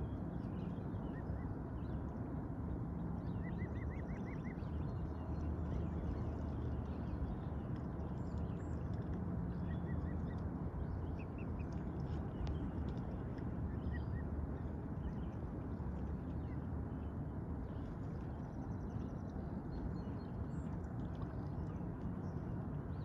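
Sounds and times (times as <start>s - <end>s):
low background rumble: 0.0s - 23.0s.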